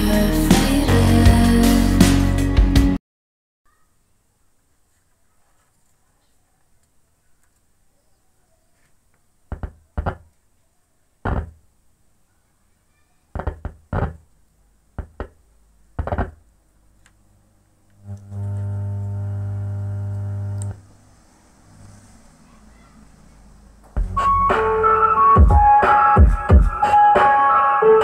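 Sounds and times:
speaker thumps and pops: 9.5s - 10.3s, 11.2s - 11.6s, 13.4s - 14.2s, 15.0s - 15.4s, 16.0s - 16.4s.

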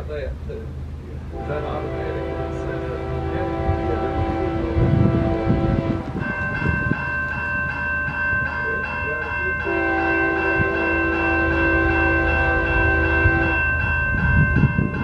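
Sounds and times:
crossing warning bell ringing: 1.2s - 15.0s
locomotive horn: 1.3s - 6.4s, 9.6s - 13.8s.

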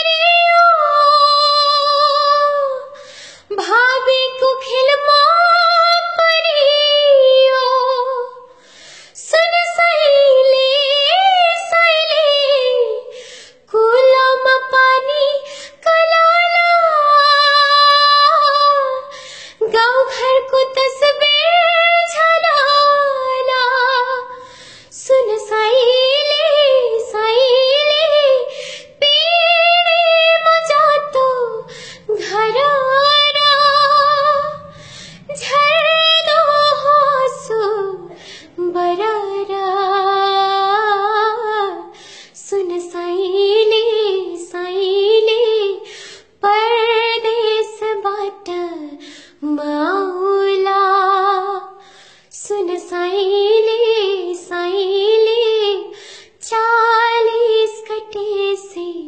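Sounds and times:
woman singing unaccompanied: 0.0s - 8.5s, 9.2s - 13.1s, 13.7s - 45.8s, 46.4s - 59.0s.

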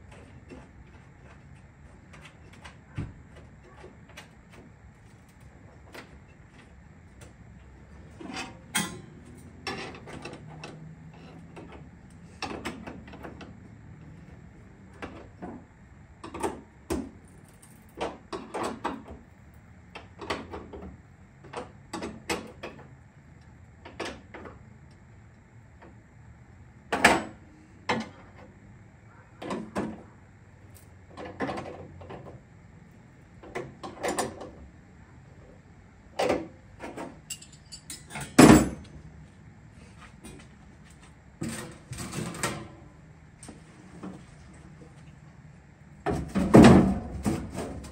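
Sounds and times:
metal tools knocking and clinking: 37.2s - 38.8s.

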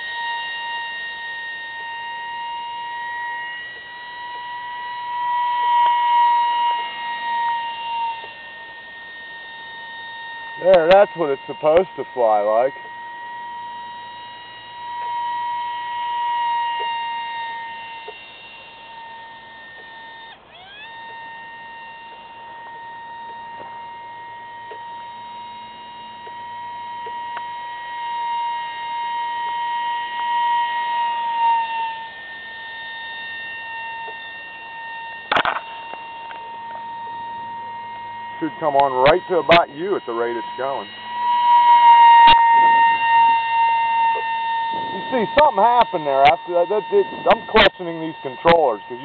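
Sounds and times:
electric ducted fan whining: 0.0s - 49.0s
sharp click: 35.3s - 36.4s.

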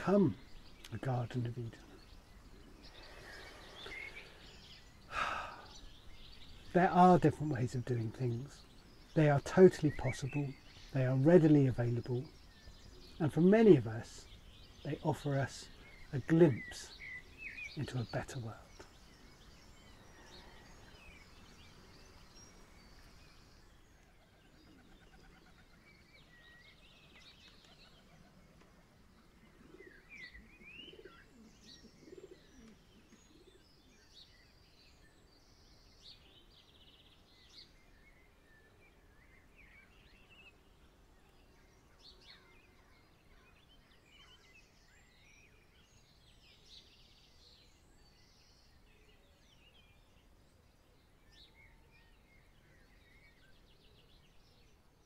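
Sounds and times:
small birds chirping: 0.0s - 55.0s
dove cooing: 24.2s - 25.8s, 29.4s - 33.6s.

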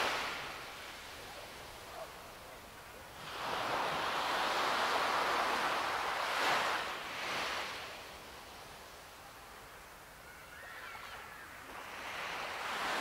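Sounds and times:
ocean waves washing: 0.0s - 8.0s, 11.0s - 13.0s.

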